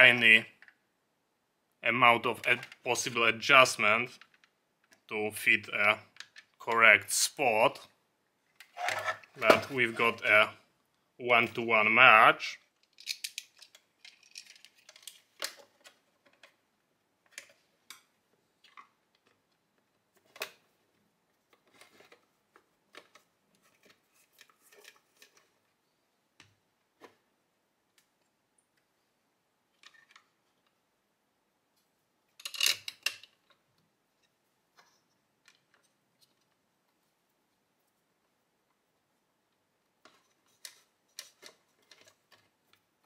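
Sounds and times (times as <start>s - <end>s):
plastic parts clicking and tapping: 6.1s - 6.8s, 12.7s - 16.6s, 21.4s - 25.7s, 32.4s - 36.6s, 40.0s - 42.9s
plastic clatter: 12.8s - 16.6s.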